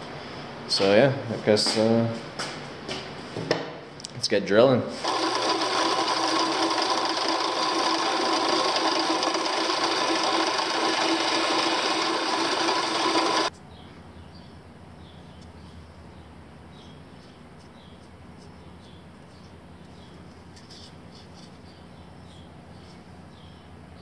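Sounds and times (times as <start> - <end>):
drill press boring wood: 5.0 - 13.5.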